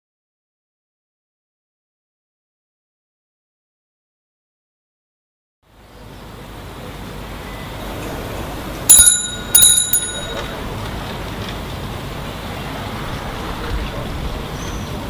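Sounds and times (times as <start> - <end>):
street noise: 5.6 - 15.0
bicycle bell ringing: 8.9 - 10.7.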